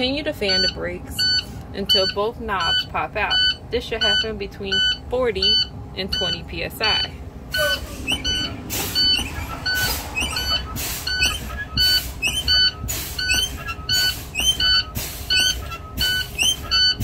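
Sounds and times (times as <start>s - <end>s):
low air warning buzzer beeping: 0.0s - 17.0s
air brake hiss: 9.8s - 11.2s, 12.9s - 13.2s, 15.0s - 15.4s.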